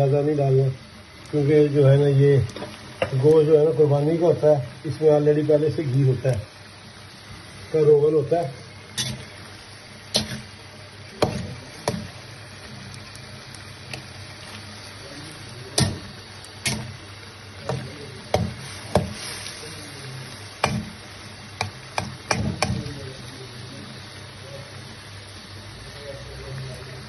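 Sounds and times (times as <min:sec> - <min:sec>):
meat sizzling in oil: 0:00.0 - 0:27.0
steel spatula scraping a pan: 0:08.9 - 0:09.4, 0:10.1 - 0:10.6.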